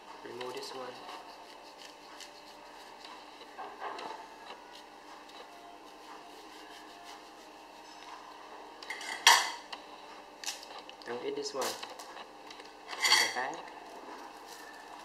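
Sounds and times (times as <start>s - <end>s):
knife cutting into apple: 1.0s - 3.0s.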